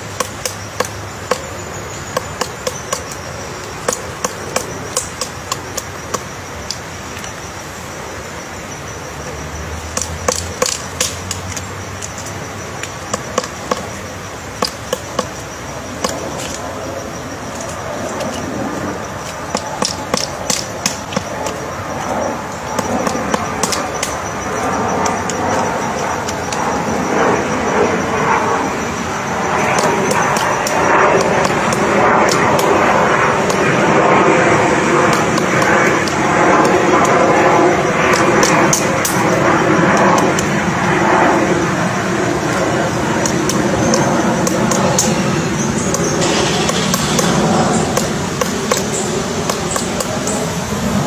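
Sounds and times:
woodpecker knocking on wood: 0.0s - 6.9s, 9.2s - 16.6s, 19.2s - 22.0s, 22.6s - 26.7s, 29.6s - 32.8s, 43.2s - 50.4s
steady rushing noise: 0.0s - 51.0s.

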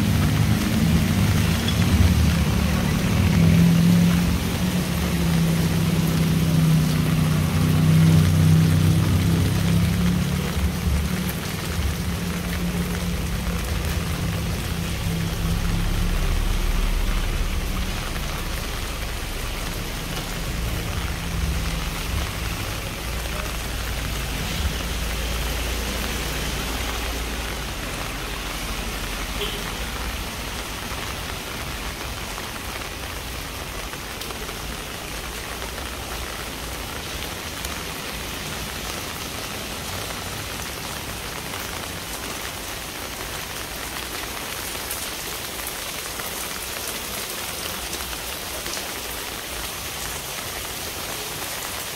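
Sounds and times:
rain pattering on hard surfaces: 0.0s - 51.9s
low rumble: 11.7s - 26.1s.

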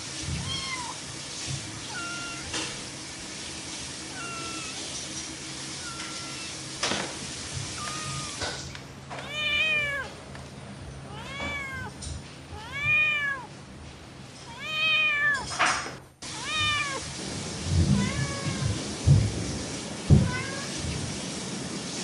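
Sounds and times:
cat meowing: 0.3s - 1.0s, 1.8s - 2.7s, 4.0s - 5.0s, 5.8s - 6.7s, 7.6s - 10.2s, 11.0s - 13.6s, 14.4s - 15.6s, 16.2s - 17.2s, 17.9s - 18.8s.

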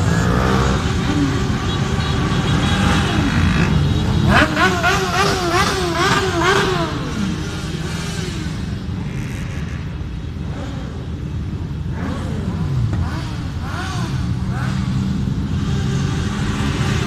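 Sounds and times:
motorcycle engine revving: 0.0s - 9.8s, 11.9s - 17.0s
motorcycles rumbling past: 0.0s - 11.3s.

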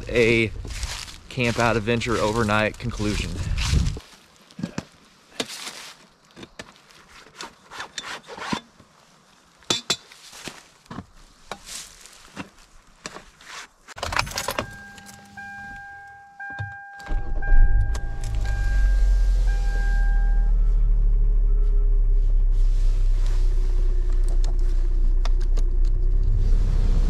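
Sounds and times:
rustling leaves: 0.1s - 7.7s, 8.8s - 14.0s
car warning chime: 14.0s - 20.9s
car engine starting and running: 14.0s - 27.0s.

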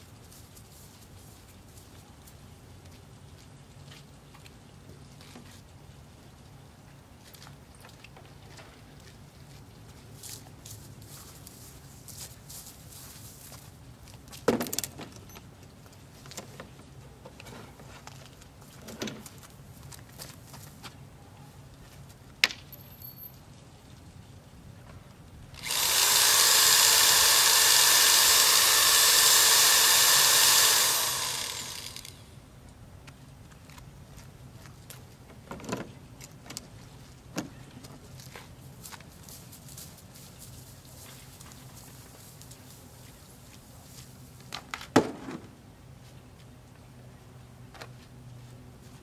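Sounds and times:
power tool motor whining: 25.6s - 32.2s.

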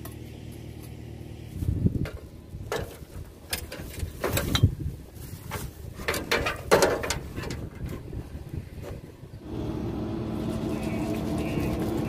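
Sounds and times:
plastic bags rustling: 10.4s - 12.0s.

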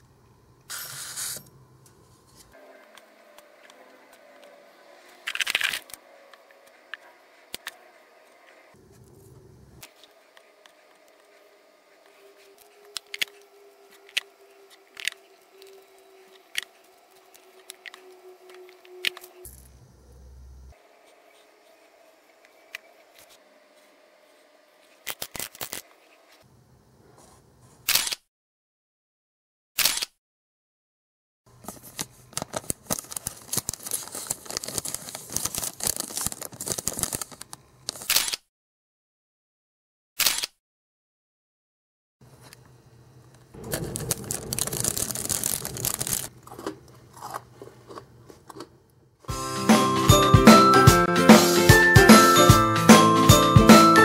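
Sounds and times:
faint steady hum: 0.0s - 5.2s, 5.9s - 25.0s
cellophane bag crinkling: 31.8s - 38.1s, 43.6s - 48.6s
chocolate pieces clicking: 43.8s - 46.6s.

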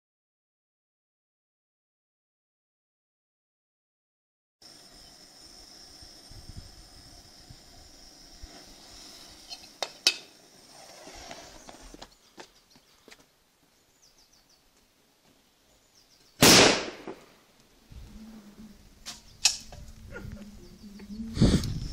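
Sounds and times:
firecracker bang: 16.4s - 17.4s.

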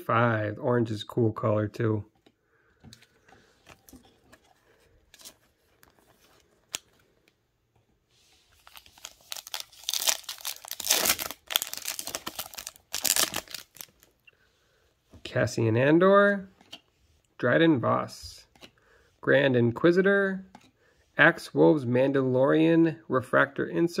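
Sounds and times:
card pack wrapper crinkling: 5.1s - 7.2s, 8.5s - 14.2s.

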